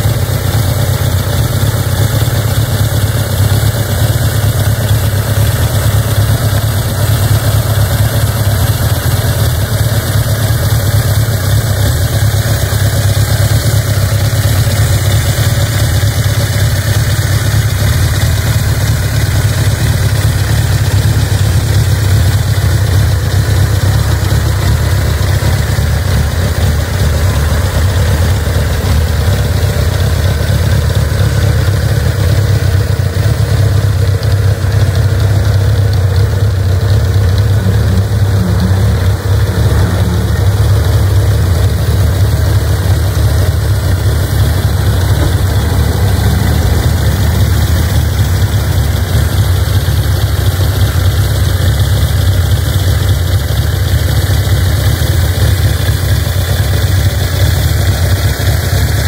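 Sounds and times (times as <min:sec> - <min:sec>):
motorcycle engine idling: 0:00.0 - 0:59.0.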